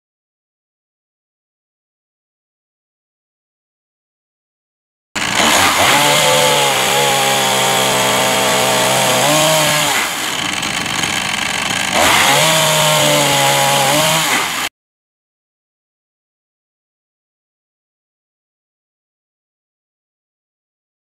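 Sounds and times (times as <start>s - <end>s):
chainsaw cutting wood: 5.2s - 14.7s.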